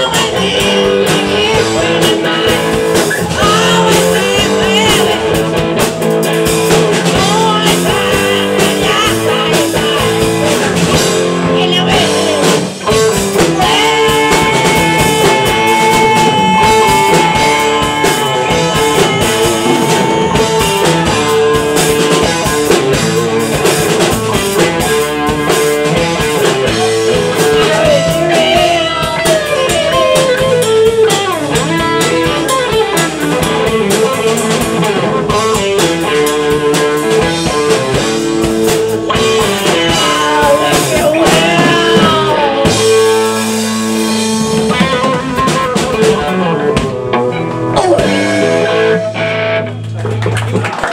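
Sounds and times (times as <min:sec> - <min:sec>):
rock band jamming: 0:00.0 - 0:50.9
held electric guitar lead note: 0:13.6 - 0:23.5, 0:39.1 - 0:50.1.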